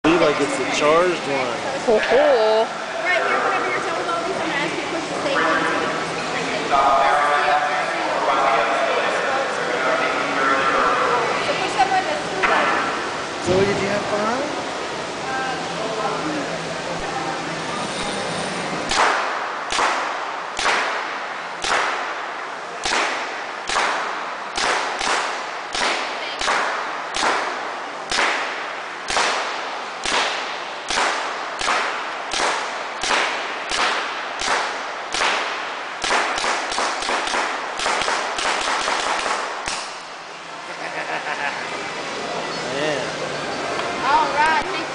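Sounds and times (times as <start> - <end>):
paintball gun firing shots: 18.9 - 22.2, 22.8 - 40.1.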